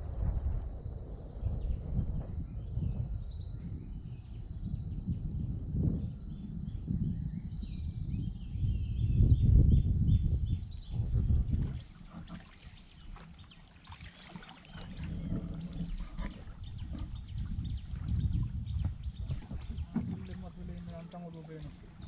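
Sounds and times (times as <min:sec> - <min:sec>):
wind gusting on microphone: 0:00.0 - 0:22.0
birds chirping: 0:07.3 - 0:22.0.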